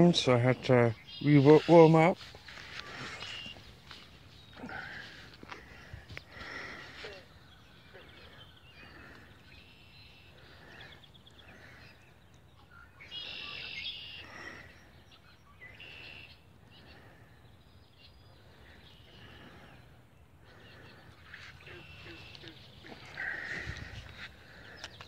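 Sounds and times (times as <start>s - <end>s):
songbirds chirping: 0.0s - 25.0s
bird trill: 7.3s - 17.1s.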